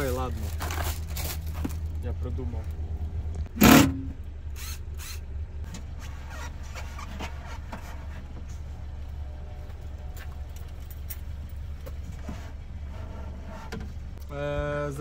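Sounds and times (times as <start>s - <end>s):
steady low rumble: 0.0s - 7.0s.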